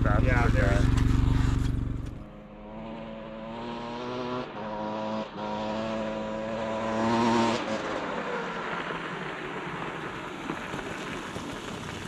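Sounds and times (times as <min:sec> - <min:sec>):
motorcycle engine under throttle: 0:00.0 - 0:07.5
motorcycle gear changes: 0:00.8 - 0:02.3.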